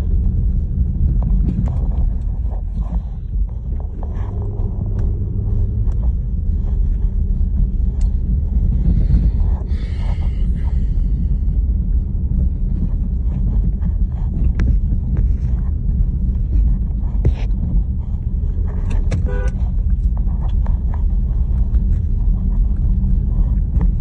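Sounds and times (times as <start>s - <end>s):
car engine and tyre rumble: 0.0s - 24.0s.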